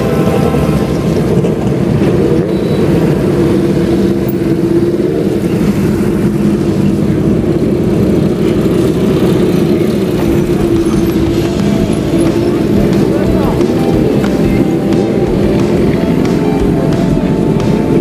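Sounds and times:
motorcycle engines droning: 0.0 - 18.0.

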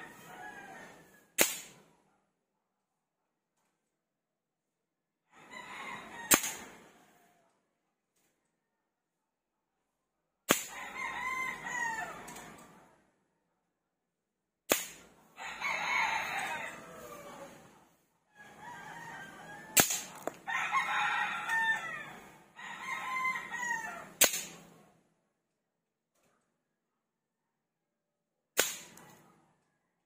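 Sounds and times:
roosters crowing: 0.0 - 1.2, 5.4 - 7.3, 10.6 - 12.7, 15.4 - 17.7, 18.4 - 24.7
air rifle shots: 1.4 - 1.9, 6.3 - 6.7, 14.7 - 15.1, 19.8 - 20.2, 24.2 - 24.7, 28.6 - 29.1.

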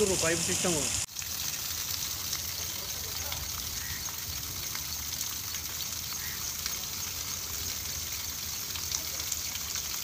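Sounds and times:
high-pitched background hiss: 0.0 - 1.1.

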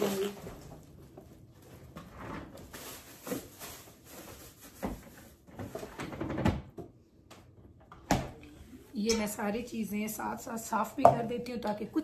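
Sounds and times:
plastic bags rustling: 0.0 - 6.3.

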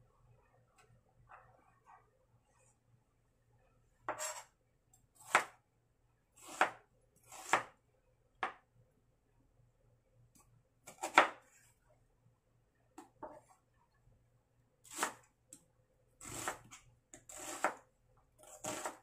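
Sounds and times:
knife slicing onion on board: 4.1 - 4.5, 5.2 - 5.6, 6.4 - 7.8, 10.9 - 11.5, 14.9 - 15.2, 16.2 - 19.0.

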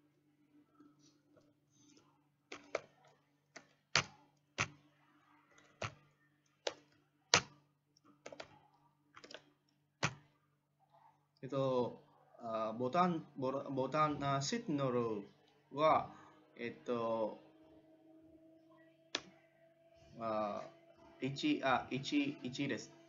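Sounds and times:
faint low hum: 0.0 - 23.0
keyboard typing: 1.8 - 10.3.

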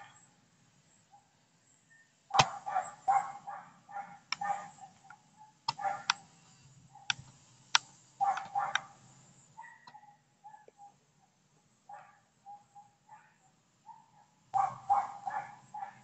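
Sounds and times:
sharp clicks: 2.3 - 2.7, 4.3 - 9.0
dog barking: 2.3 - 6.2, 6.9 - 7.2, 8.2 - 9.0, 9.6 - 11.0, 11.9 - 16.0.

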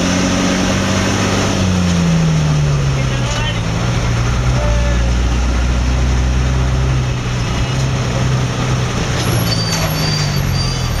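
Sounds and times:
vehicle engine running: 0.0 - 9.2
street traffic: 0.0 - 11.0
faint high squeal: 9.2 - 11.0.

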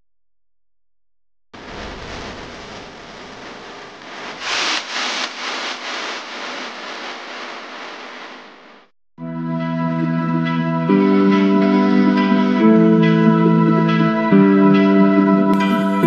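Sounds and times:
rough rubbing and scraping: 1.6 - 8.8.

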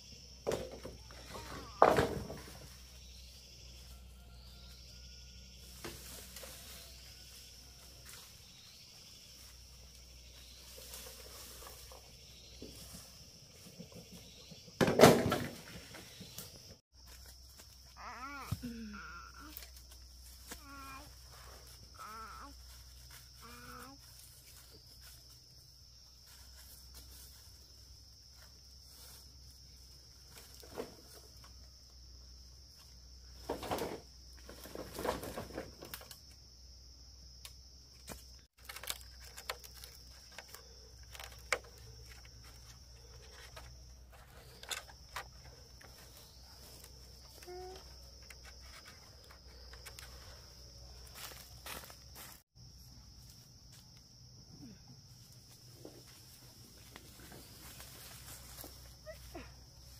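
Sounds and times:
scraping and rustling: 9.3 - 14.3
high-pitched insect drone: 17.5 - 25.4
scattered knocks and rustles: 33.4 - 36.2.

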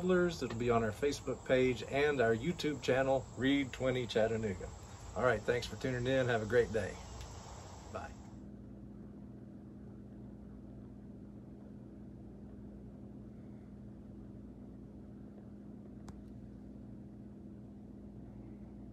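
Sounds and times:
faint background noise: 0.0 - 18.9
steady low hum: 0.0 - 18.9
faint click: 16.0 - 16.3.

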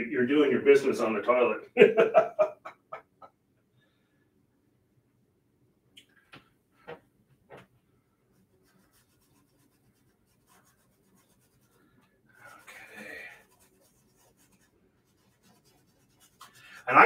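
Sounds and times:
paintbrush strokes on canvas: 8.3 - 17.0.

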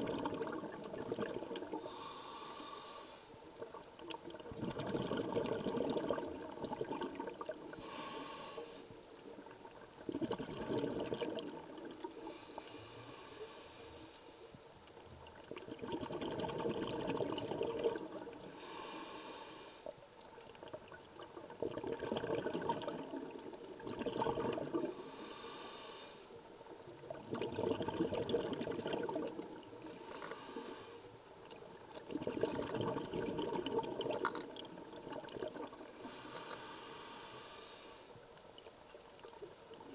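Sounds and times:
bubbling exhale: 0.0 - 14.4, 15.4 - 20.0, 20.6 - 38.3
scuba regulator breathing: 1.6 - 3.4, 7.6 - 9.0, 12.0 - 14.5, 18.4 - 20.0, 24.7 - 26.5, 29.8 - 31.3, 35.7 - 38.3.

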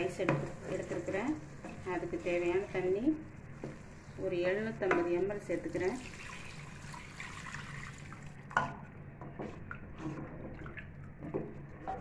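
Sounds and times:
water pouring into a metal pot: 5.9 - 8.4.

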